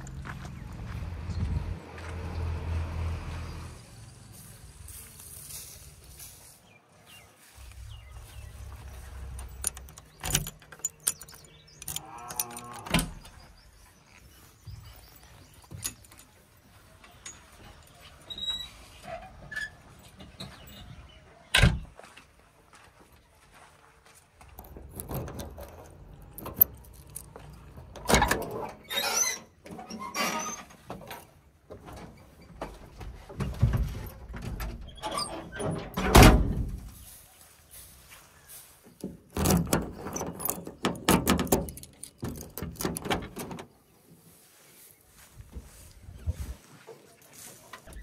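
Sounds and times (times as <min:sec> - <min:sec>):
low engine rumble: 0:00.0 - 0:06.6, 0:07.4 - 0:10.5
metal clanks and thunks: 0:24.6 - 0:28.8, 0:30.7 - 0:37.0, 0:39.0 - 0:43.8.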